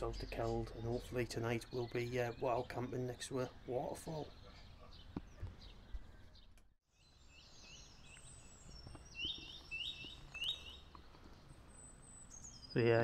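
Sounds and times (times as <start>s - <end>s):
low outdoor background: 0.0s - 13.0s
songbird singing: 0.0s - 13.0s.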